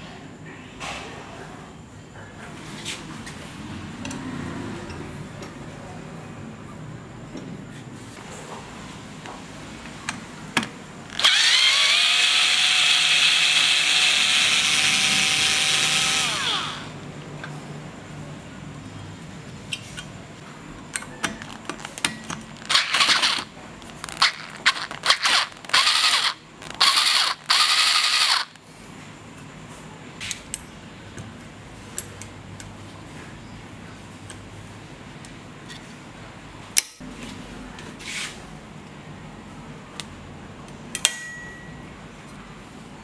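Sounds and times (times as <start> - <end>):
screwdriver scraping screw head: 22.6 - 23.5, 24.1 - 28.6
sharp metal snaps: 36.8 - 37.0, 40.9 - 41.3.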